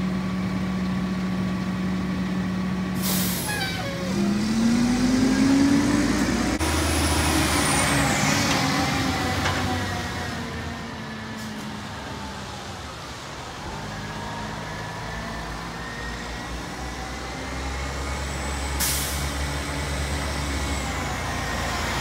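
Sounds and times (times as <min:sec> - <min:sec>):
air hiss burst: 0:03.0 - 0:03.7.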